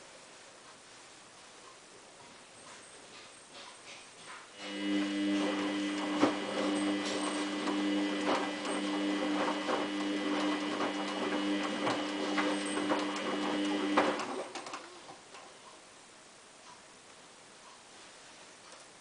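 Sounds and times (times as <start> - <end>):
water gurgling through pump: 4.6 - 14.9
drain pump humming: 4.6 - 15.5.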